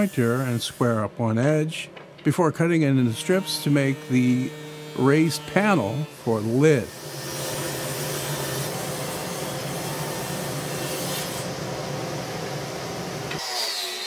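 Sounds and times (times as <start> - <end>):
table saw ripping wood: 3.2 - 11.5, 13.3 - 14.0.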